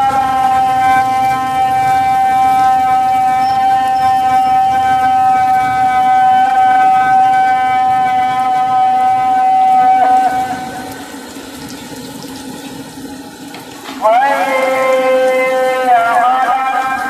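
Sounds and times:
loud siren steady tone: 0.0 - 11.5, 14.0 - 17.0.

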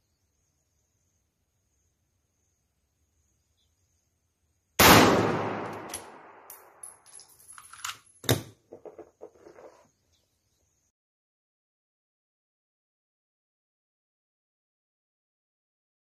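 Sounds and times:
rifle shot echoing: 4.8 - 6.8
rifle bolt clicks and clack: 5.6 - 8.4.

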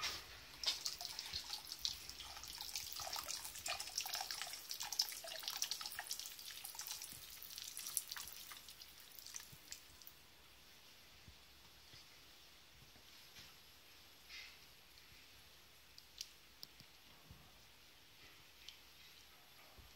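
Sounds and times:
wax pattering into water: 0.0 - 10.2.

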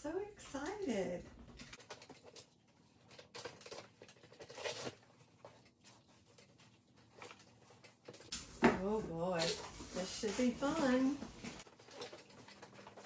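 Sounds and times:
tape tearing: 3.1 - 5.7.

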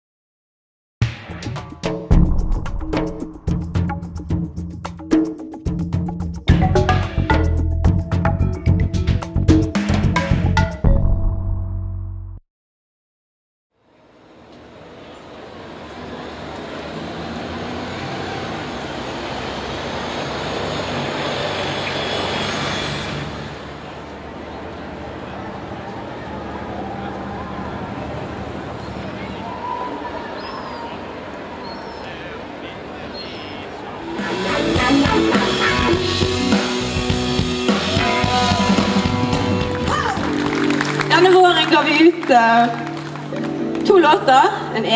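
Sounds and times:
rock music with drums and guitar: 1.0 - 11.3, 34.1 - 41.0
bus driving past: 14.0 - 36.1.

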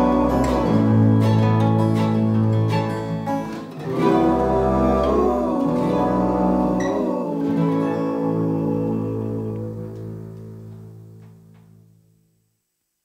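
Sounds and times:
finger-picked acoustic guitars: 0.0 - 12.0.

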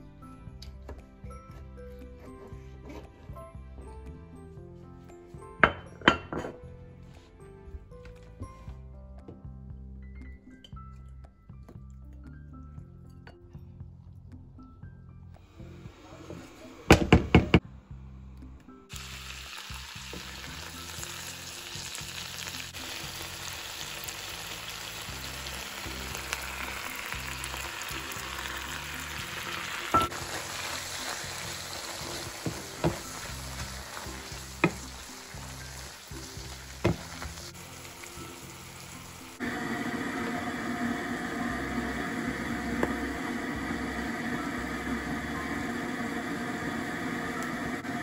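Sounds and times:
onions and peppers sizzling in a pan: 18.9 - 48.0.

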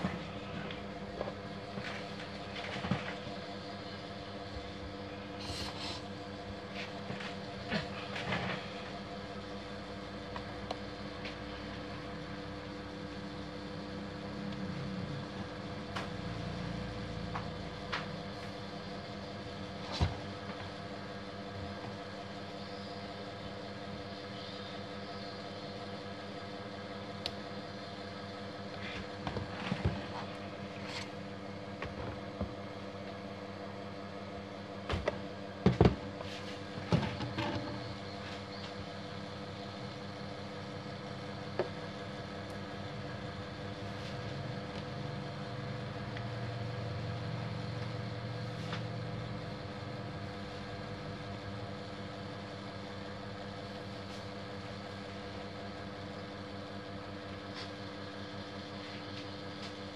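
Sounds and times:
steady machine hum: 0.0 - 59.9.

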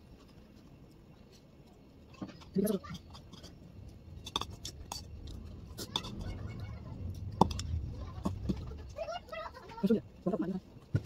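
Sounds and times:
low rumble: 3.6 - 10.7.

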